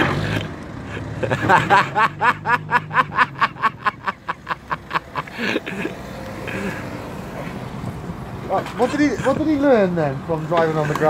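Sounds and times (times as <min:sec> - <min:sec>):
man laughing hard: 0:00.9 - 0:05.9.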